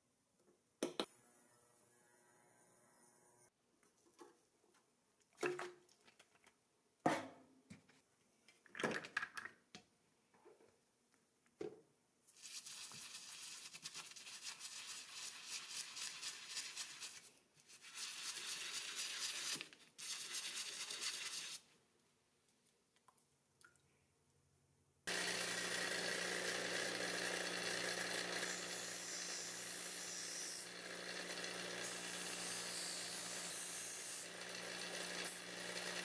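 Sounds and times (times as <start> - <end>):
brush scrubbing toy tyre: 12.3 - 21.6.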